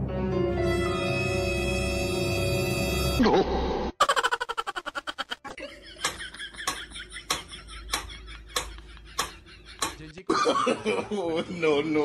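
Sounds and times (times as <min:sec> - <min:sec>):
mechanical metronome ticking: 0:06.0 - 0:10.1.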